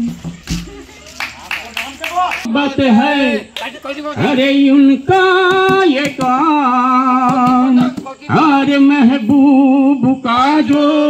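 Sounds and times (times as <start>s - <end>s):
man singing into a microphone: 4.2s - 11.0s.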